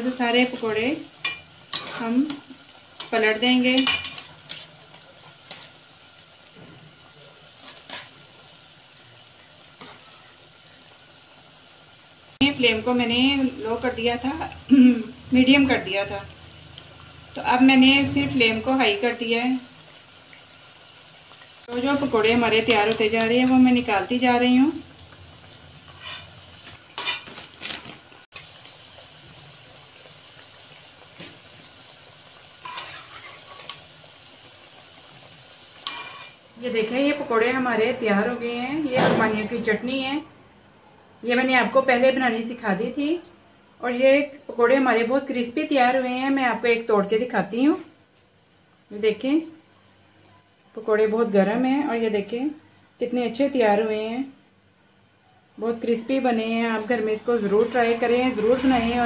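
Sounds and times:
quiet steady frying sizzle: 0:00.0 - 0:59.0
metal spatula scraping a pan: 0:07.6 - 0:08.2, 0:25.8 - 0:27.9, 0:32.6 - 0:33.9, 0:35.8 - 0:36.4.

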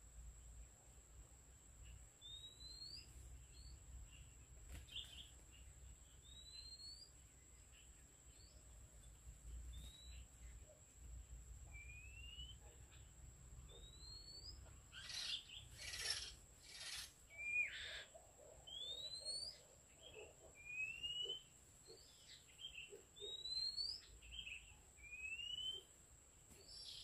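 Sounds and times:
bird whistling song: 0:02.2 - 0:03.8, 0:06.2 - 0:07.1, 0:09.7 - 0:10.3, 0:11.7 - 0:12.7, 0:13.7 - 0:25.9, 0:26.6 - 0:27.0
harsh bird calls: 0:13.7 - 0:25.9.

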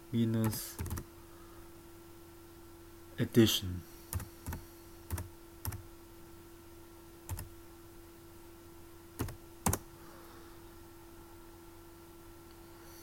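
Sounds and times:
computer keyboard keystrokes: 0:00.4 - 0:01.0, 0:04.1 - 0:05.8, 0:07.3 - 0:07.5, 0:09.2 - 0:09.9.

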